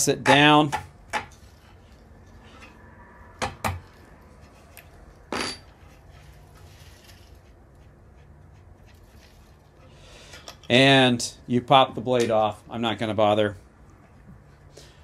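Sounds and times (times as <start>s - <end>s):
ringing metal clink: 5.3s - 5.7s.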